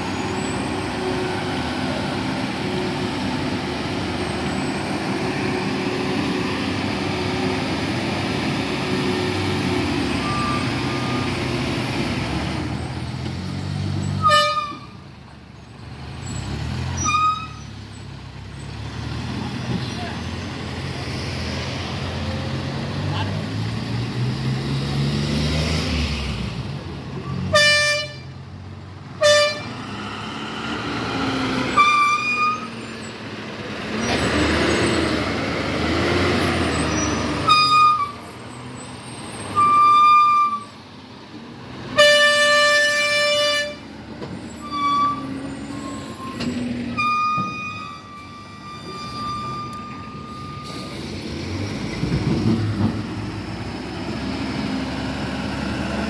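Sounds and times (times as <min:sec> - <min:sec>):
heavy lorry engines running: 0:00.0 - 0:56.0
truck horns blasting: 0:14.1 - 0:15.0, 0:16.9 - 0:17.7, 0:27.4 - 0:28.4, 0:29.2 - 0:29.8, 0:31.6 - 0:32.9, 0:36.6 - 0:38.2, 0:39.5 - 0:40.8, 0:41.9 - 0:43.9, 0:44.6 - 0:50.9.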